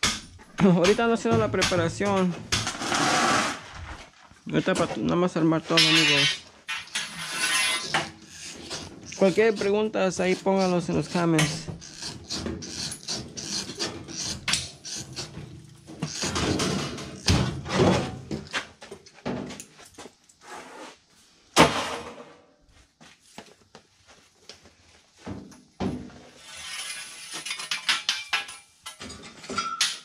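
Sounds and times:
metal scraping and rubbing: 1.3 - 4.0, 4.7 - 18.5, 26.3 - 29.2.

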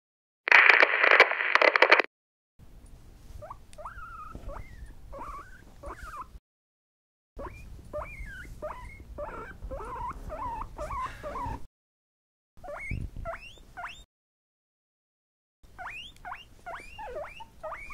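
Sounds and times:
tv static hiss: 0.5 - 2.1
guinea pigs squeaking: 3.4 - 6.4, 7.4 - 11.7, 12.6 - 14.1, 15.7 - 17.9.

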